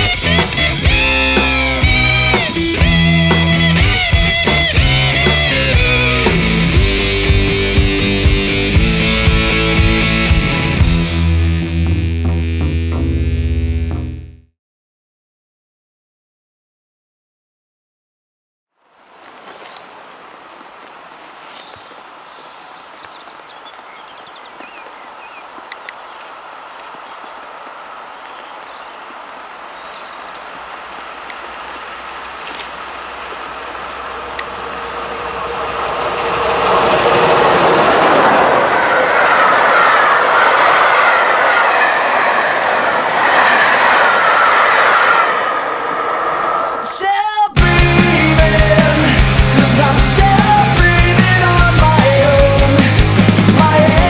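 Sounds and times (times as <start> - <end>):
steam locomotive passing: 0.0 - 11.2, 19.0 - 54.0
train wheels on rails: 19.0 - 47.1.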